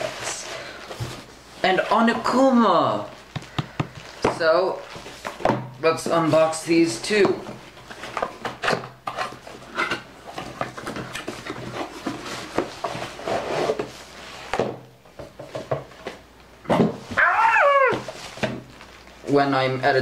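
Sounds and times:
cardboard box rustling and scraping: 10.5 - 14.6.

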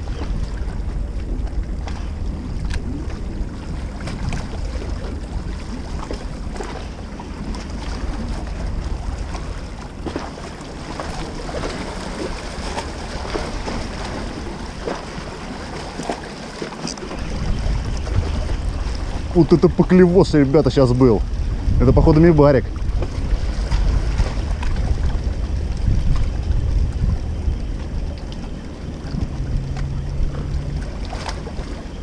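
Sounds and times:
small waves on rocky shore: 0.0 - 27.2
wind buffeting microphone: 0.0 - 32.0.

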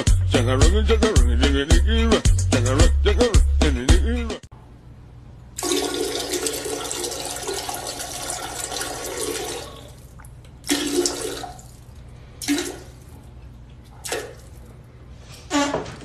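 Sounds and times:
toilet flushing: 5.6 - 13.1.

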